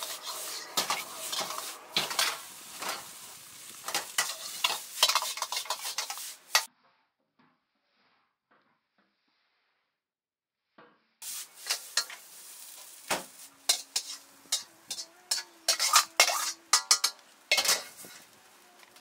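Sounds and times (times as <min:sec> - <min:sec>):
egg and rice sizzling: 0:00.0 - 0:06.7, 0:11.2 - 0:19.0
metal ladle clanking in a wok: 0:03.9 - 0:06.7, 0:13.7 - 0:18.2.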